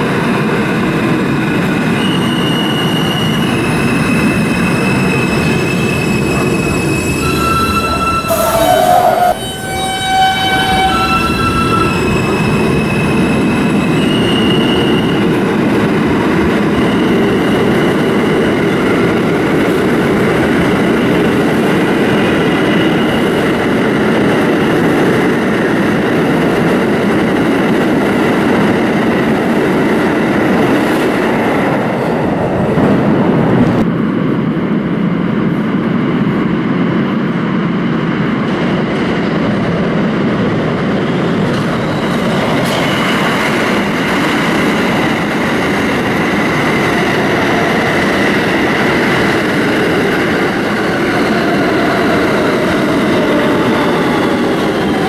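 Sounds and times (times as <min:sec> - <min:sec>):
train wheels rumbling on rail: 0:00.0 - 0:55.0
thin squealing tones: 0:02.0 - 0:15.2
train horn chord: 0:07.3 - 0:12.1.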